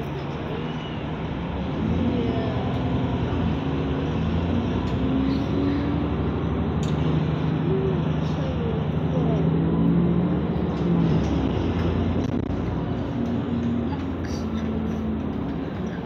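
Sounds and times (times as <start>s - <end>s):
bus diesel engine accelerating: 0.0s - 16.0s.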